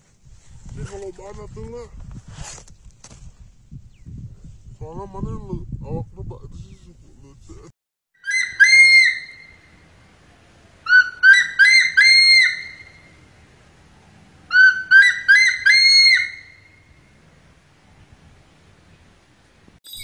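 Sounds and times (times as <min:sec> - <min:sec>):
hawk-eagle whistled calls: 0:08.2 - 0:09.8, 0:10.9 - 0:13.2, 0:14.5 - 0:16.8.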